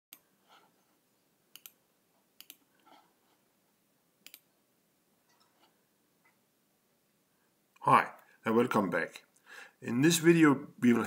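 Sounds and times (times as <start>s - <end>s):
computer mouse clicking: 1.5s - 1.8s, 2.4s - 2.9s, 4.2s - 4.5s.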